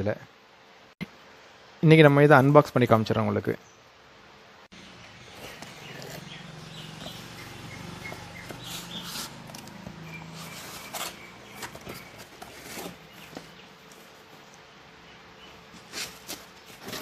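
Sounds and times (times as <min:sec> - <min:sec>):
cardboard and foam rustling: 0:08.4 - 0:14.4, 0:15.7 - 0:17.0.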